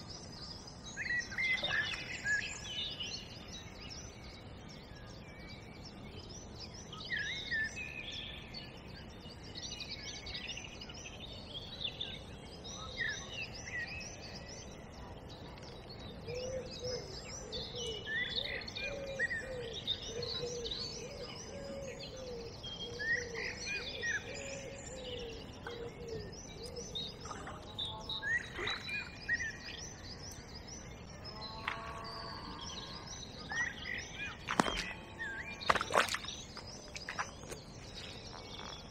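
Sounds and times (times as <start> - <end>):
songbirds chirping: 0.0 - 38.9.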